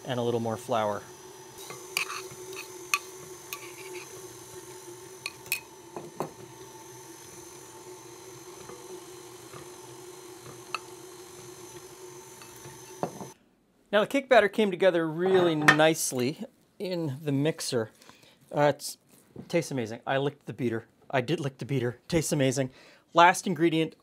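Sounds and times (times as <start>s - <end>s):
person talking: 0.0s - 1.1s, 13.9s - 17.9s
stand mixer motor whine: 0.0s - 13.4s.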